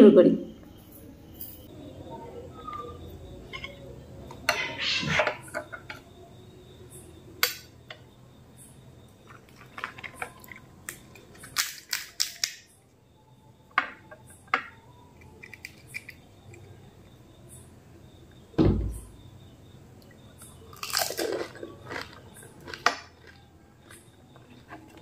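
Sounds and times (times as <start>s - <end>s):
crisp shells cracking: 20.8s - 23.4s.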